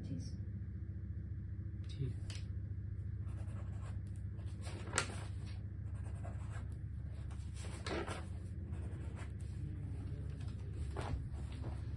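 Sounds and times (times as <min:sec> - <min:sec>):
steady low hum: 0:00.0 - 0:11.9.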